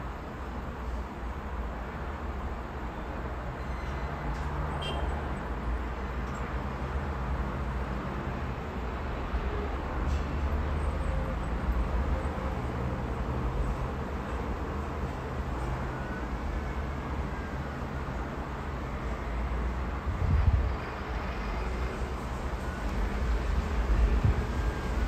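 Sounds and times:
road traffic: 0:00.0 - 0:25.0
heavy trucks passing: 0:00.2 - 0:25.0
gusty wind rumbling: 0:20.0 - 0:21.5, 0:23.0 - 0:25.0.

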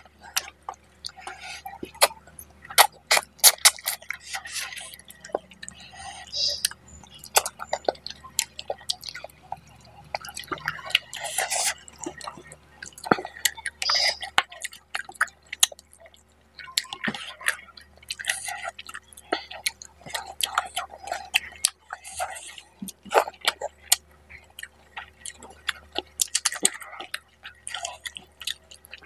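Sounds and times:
wet chewing and lip-smacking: 0:00.0 - 0:29.0.

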